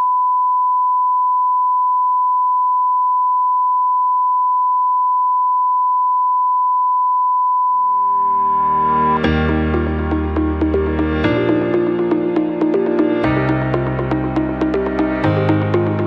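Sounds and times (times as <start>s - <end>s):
steady electronic beep tone: 5.9s - 16.0s
music: 8.3s - 16.0s.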